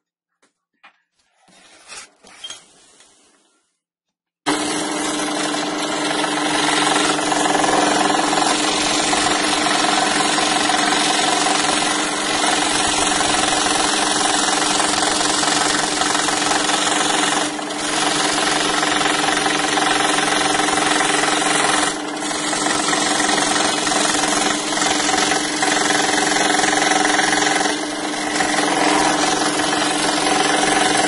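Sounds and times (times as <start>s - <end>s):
scroll saw cutting plywood: 4.5s - 31.0s.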